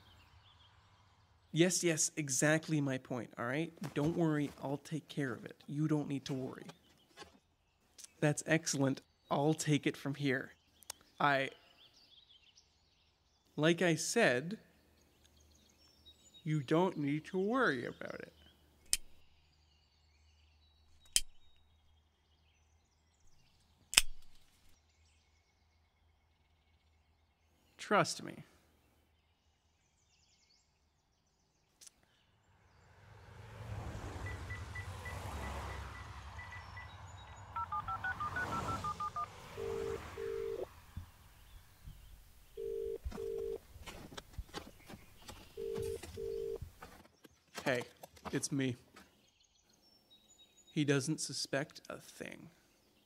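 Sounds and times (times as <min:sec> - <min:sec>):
keypad beeps: 0:37.6 - 0:40.6, 0:42.6 - 0:43.6, 0:45.6 - 0:46.6
phone ringback tone: 0:37.6 - 0:40.7, 0:42.6 - 0:43.6, 0:45.6 - 0:46.6
touch-tone dialing tones: 0:37.6 - 0:40.7, 0:42.6 - 0:43.6, 0:45.6 - 0:46.6.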